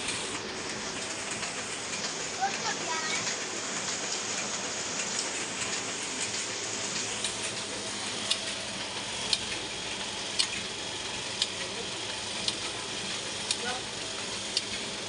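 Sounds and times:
printing press mechanical hiss: 0:00.0 - 0:15.0
sharp mechanical click: 0:10.4 - 0:10.6.

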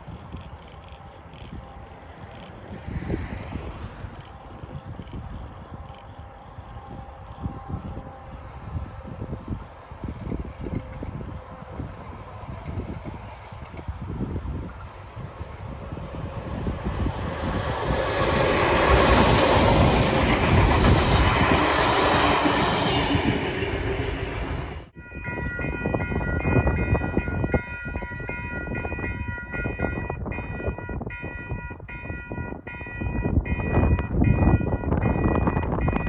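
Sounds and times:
diesel locomotive passing: 0:00.0 - 0:36.0
train wheel noise: 0:00.0 - 0:36.0
wind rumble on microphone: 0:00.0 - 0:36.0
multi-tone train horn: 0:04.6 - 0:09.5.

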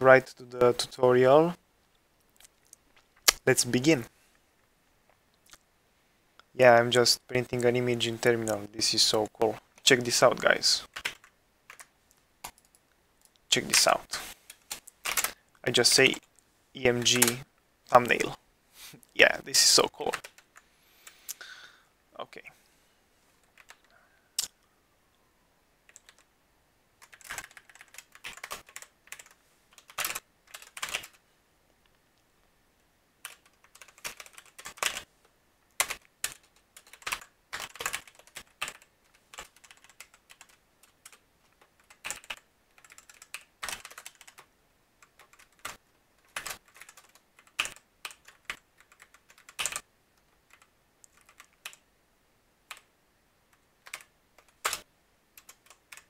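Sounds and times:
typing on computer keyboard: 0:10.9 - 0:12.8, 0:14.5 - 0:15.4, 0:17.0 - 0:17.4, 0:23.5 - 0:23.9, 0:25.9 - 0:26.3, 0:27.0 - 0:31.2, 0:33.2 - 0:35.0, 0:35.8 - 0:49.8, 0:50.4 - 0:51.8, 0:53.8 - 0:56.0.

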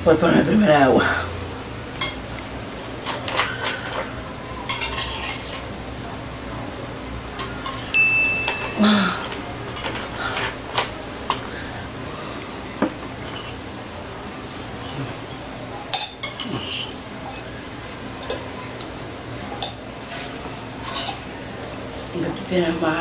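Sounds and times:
spoons scraping ceramic bowls: 0:03.0 - 0:05.6.

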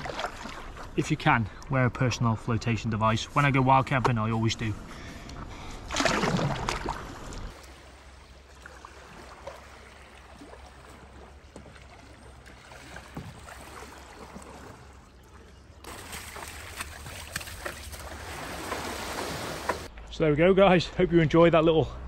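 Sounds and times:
paddle splashes and drips: 0:00.0 - 0:01.7, 0:05.6 - 0:19.9.

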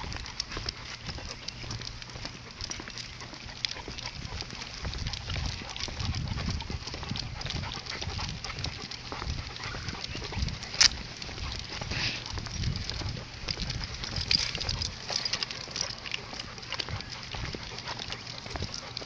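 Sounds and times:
footsteps on asphalt: 0:00.0 - 0:19.0
metal collar clinking: 0:10.2 - 0:19.0.

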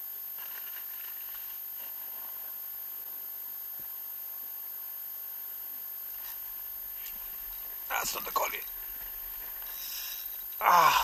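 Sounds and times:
calm sea hiss: 0:09.6 - 0:10.4.

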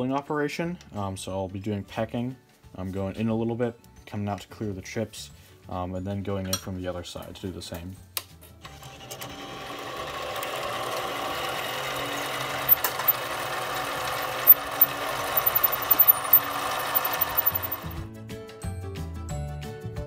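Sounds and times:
drill bit ticking on steel: 0:14.4 - 0:17.9.

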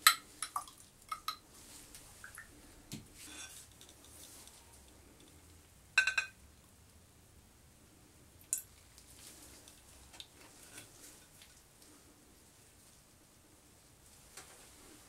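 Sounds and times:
glassware clinking: 0:06.0 - 0:06.4.

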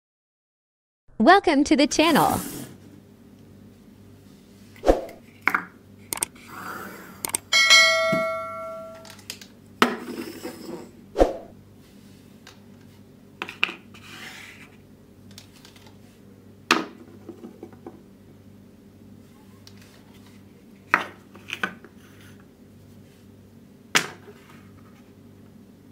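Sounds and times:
bright ringing chime: 0:07.5 - 0:09.1.

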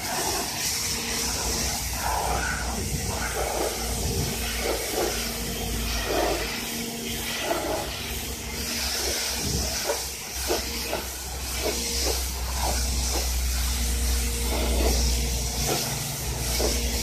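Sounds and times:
pressure washer spraying water: 0:00.0 - 0:17.0
steady hum: 0:00.0 - 0:17.0.

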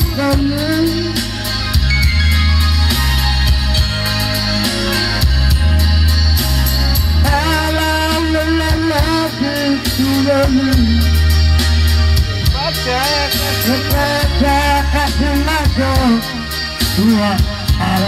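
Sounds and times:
man singing into a microphone: 0:00.0 - 0:01.9, 0:07.2 - 0:11.4, 0:12.5 - 0:18.0
amplified backing music: 0:00.0 - 0:18.0.

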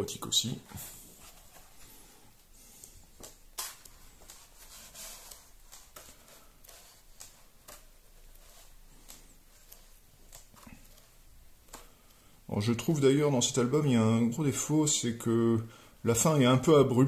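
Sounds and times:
book pages being turned: 0:00.4 - 0:02.1, 0:02.7 - 0:13.0.

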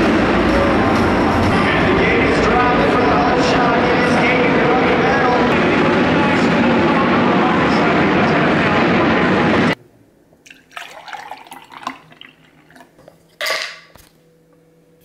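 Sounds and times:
arena crowd din: 0:00.0 - 0:09.8
milk pouring into a glass: 0:10.5 - 0:13.0.

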